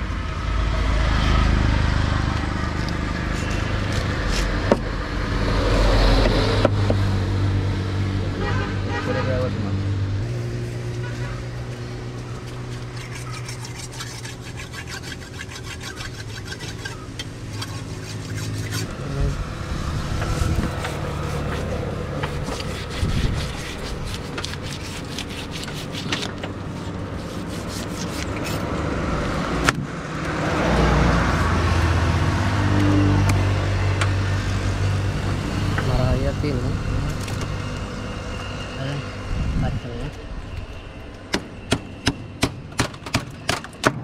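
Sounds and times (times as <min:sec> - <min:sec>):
engine hum: 0:00.0 - 0:43.8
road traffic: 0:00.0 - 0:44.0
vehicle passing: 0:00.4 - 0:26.0, 0:26.6 - 0:42.1
knife scraping fish: 0:11.2 - 0:19.2, 0:20.2 - 0:28.7.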